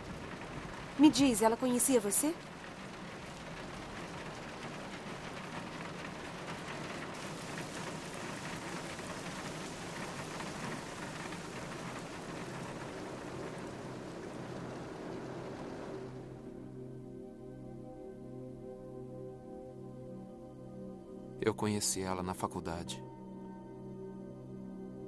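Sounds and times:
rain drumming on car roof: 0.0 - 16.6
rain running down windows: 0.0 - 16.7.

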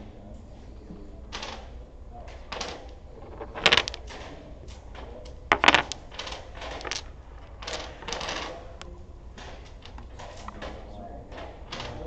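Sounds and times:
dominoes clacking on wooden table: 2.5 - 8.8
tiles sliding: 3.2 - 4.2, 5.5 - 8.6.

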